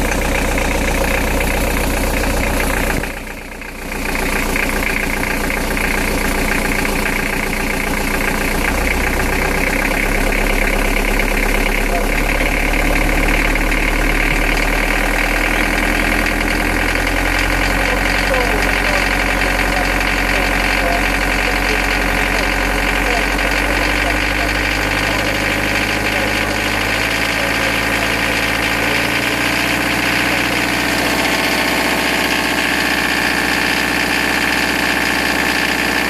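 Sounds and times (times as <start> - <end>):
diesel engine running with a knock: 0.0 - 36.0.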